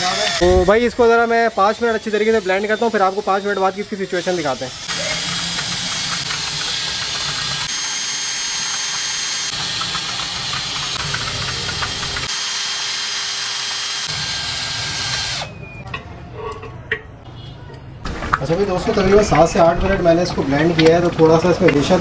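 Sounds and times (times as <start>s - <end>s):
cordless drill whining: 0.0s - 15.6s.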